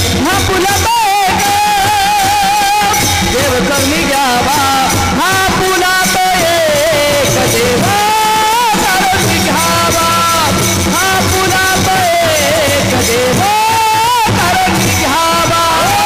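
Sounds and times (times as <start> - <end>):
men singing devotional song: 0.0 - 16.0
rhythmic accompaniment: 0.0 - 16.0.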